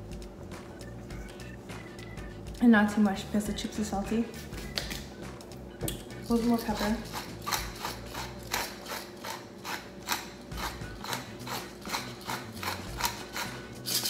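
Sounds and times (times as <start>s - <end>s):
pepper mill grinding clicks: 5.9s - 14.0s.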